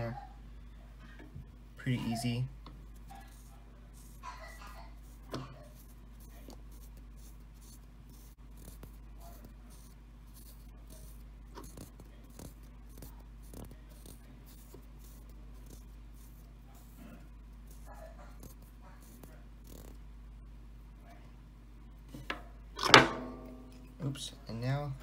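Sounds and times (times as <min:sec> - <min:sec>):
steady low hum: 0:00.0 - 0:25.0
fingers rubbing thread: 0:03.0 - 0:20.0.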